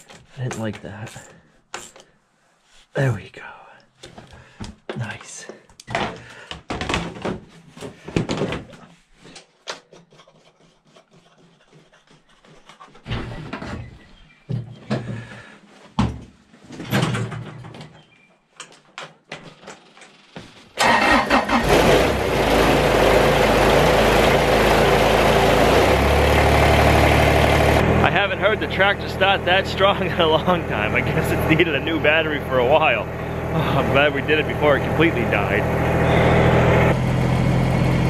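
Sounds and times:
clicks and knocks of hands working: 0.0 - 2.1, 5.7 - 13.8, 18.6 - 20.2
diesel tractor engine running: 20.8 - 38.0.

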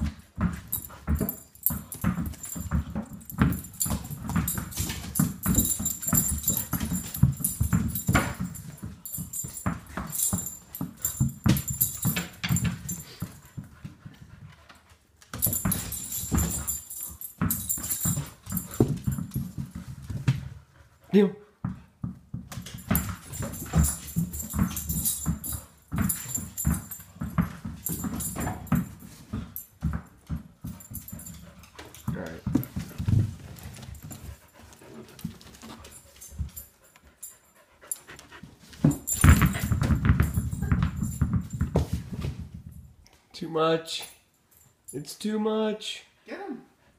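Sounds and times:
tennis balls knocking on wood floor: 0.0 - 14.0, 21.6 - 34.3, 38.7 - 42.6
dog panting: 30.7 - 39.7.

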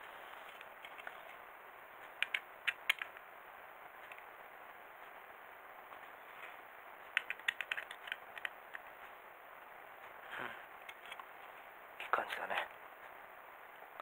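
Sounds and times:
screwdriver clicking on tiny screw: 7.2 - 8.5.

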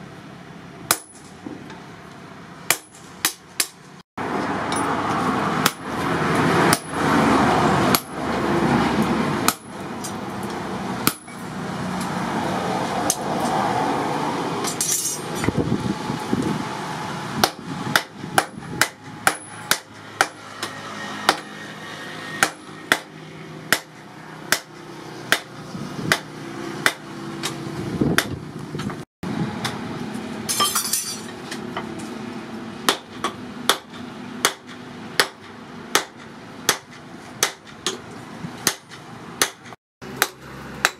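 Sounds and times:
hammer striking steel on anvil: 0.9 - 1.8, 2.7 - 3.8, 4.4 - 7.1, 9.4 - 12.2, 17.4 - 21.6, 22.4 - 25.5, 26.1 - 27.6, 32.8 - 38.0, 38.6 - 40.9.

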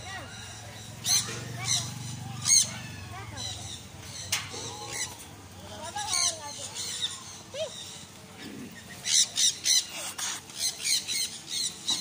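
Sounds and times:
parrots squawking: 0.0 - 5.2, 5.8 - 8.1, 8.7 - 12.0.

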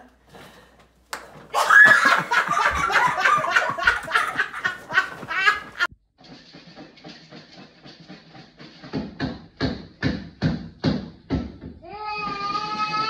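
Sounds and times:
people laughing hard: 1.6 - 5.9.

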